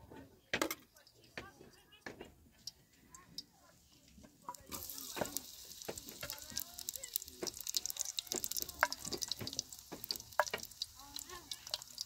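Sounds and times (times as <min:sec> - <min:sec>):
meat sizzling in hot oil: 0:03.4 - 0:12.0.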